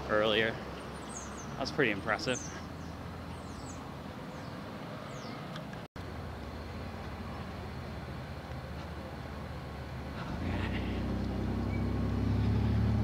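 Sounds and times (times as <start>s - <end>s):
road traffic hum: 0.0s - 13.0s
birds chirping: 0.1s - 5.8s.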